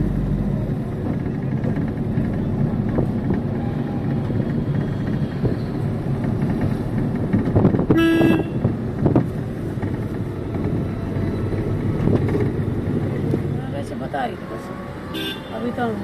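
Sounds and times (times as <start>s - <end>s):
low rumble of road traffic: 0.0s - 16.0s
vehicle horn toot: 7.9s - 8.7s, 15.1s - 15.6s.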